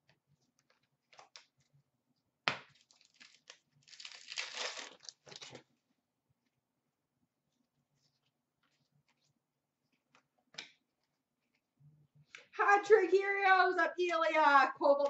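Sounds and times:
card pack ripping open: 0:02.8 - 0:05.6
wrapper crinkling: 0:02.8 - 0:05.6.

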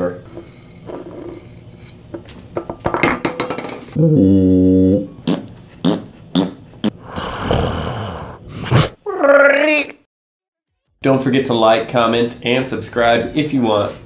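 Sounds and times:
low voiced sound: 0:04.0 - 0:05.2.

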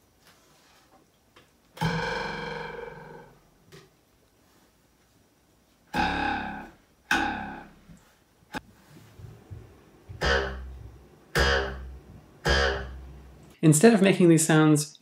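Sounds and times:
plucked wooden ruler twanging: 0:06.0 - 0:07.8, 0:10.1 - 0:13.1.

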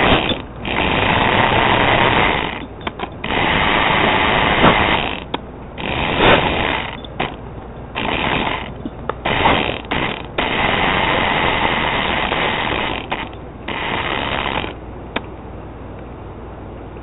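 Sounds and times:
sharp clicks: 0:00.0 - 0:07.4, 0:08.0 - 0:15.3
toy truck motor and gears: 0:00.0 - 0:14.8.

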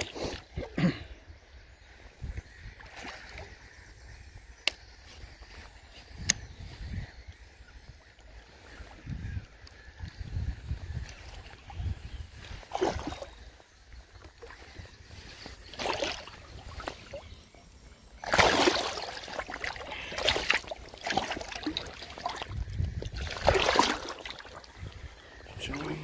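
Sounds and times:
fish splashing in water: 0:15.7 - 0:17.2, 0:18.2 - 0:24.8.

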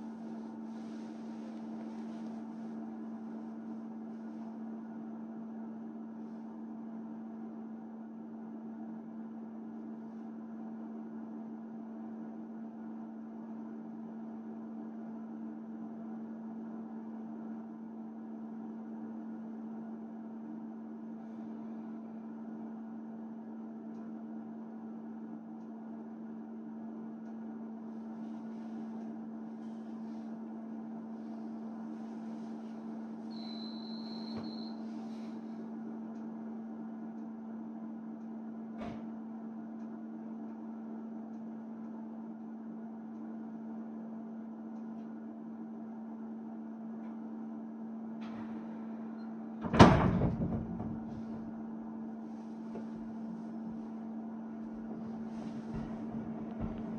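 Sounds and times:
electric train equipment hum: 0:00.0 - 0:06.4, 0:26.7 - 0:38.6, 0:45.6 - 0:56.9.

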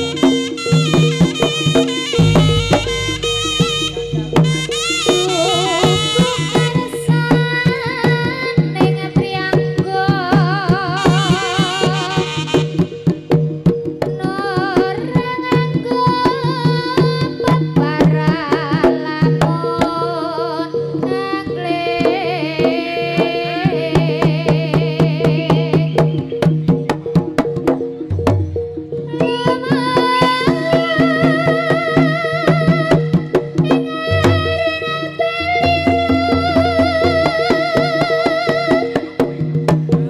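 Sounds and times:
ornamented high melody: 0:00.0 - 0:07.2, 0:33.9 - 0:39.2
rapid hand drum strokes: 0:00.0 - 0:19.2, 0:26.5 - 0:40.0
steady held low tones: 0:02.1 - 0:06.2, 0:34.1 - 0:38.1.

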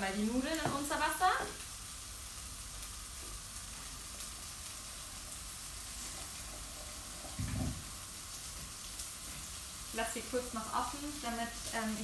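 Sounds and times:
tofu sizzling in a pan: 0:00.0 - 0:12.0.

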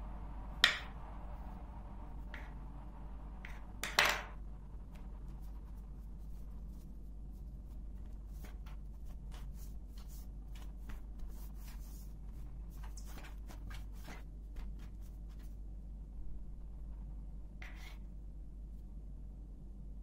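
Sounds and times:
steady low hum: 0:00.0 - 0:20.0
hands rubbing dough and flour: 0:04.8 - 0:15.7, 0:17.6 - 0:18.0.

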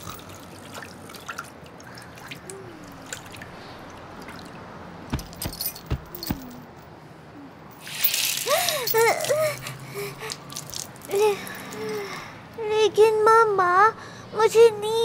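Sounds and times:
heavy thumps: 0:05.1 - 0:06.7.

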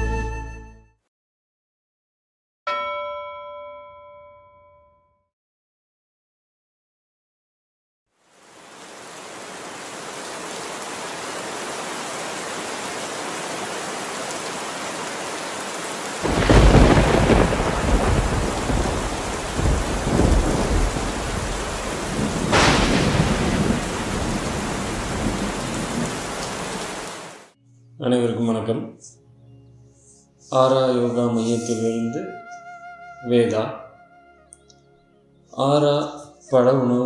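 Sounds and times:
steady rain: 0:08.2 - 0:27.6
thunder clap and rumble: 0:16.2 - 0:26.9.

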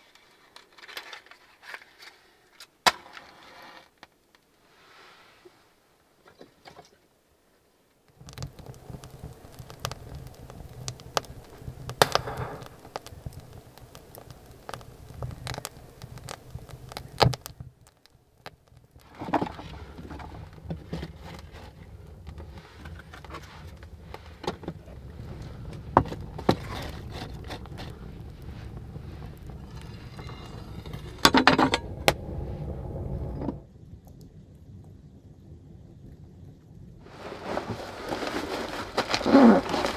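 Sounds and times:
wood fire crackling and popping: 0:07.9 - 0:39.9
low steady rumble: 0:08.2 - 0:39.9.

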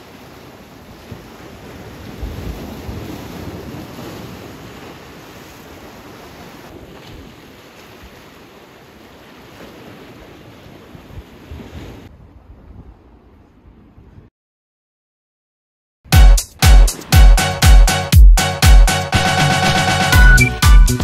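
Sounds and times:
sea waves washing ashore: 0:00.0 - 0:13.6, 0:16.8 - 0:18.1
wind gusting on microphone: 0:00.2 - 0:08.2, 0:10.9 - 0:14.3.

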